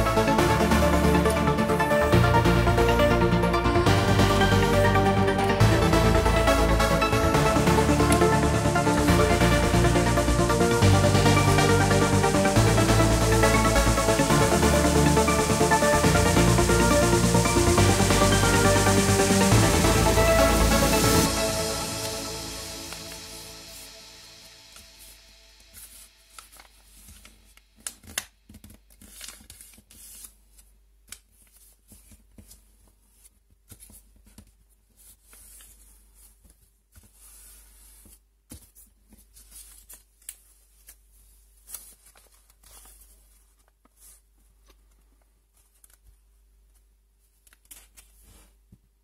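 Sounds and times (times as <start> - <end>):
paper folding and creasing: 22.8 - 48.8.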